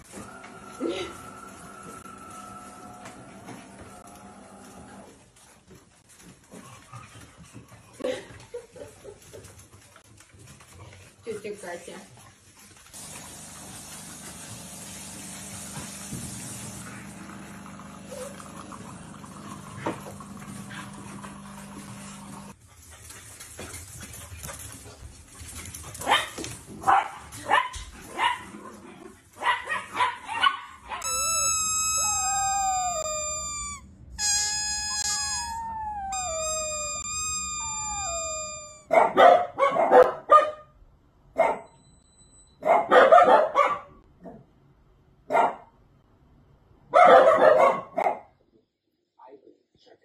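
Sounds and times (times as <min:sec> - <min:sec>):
dog barking: 0:26.0 - 0:28.5, 0:29.4 - 0:31.1, 0:38.9 - 0:40.7, 0:41.4 - 0:41.7, 0:42.6 - 0:44.4, 0:45.3 - 0:45.7, 0:46.9 - 0:48.4
dog howling: 0:31.0 - 0:38.8.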